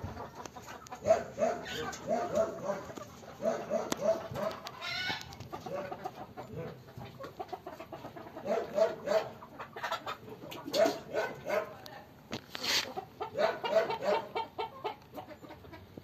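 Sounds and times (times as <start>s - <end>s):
hens clucking: 0.0s - 16.0s.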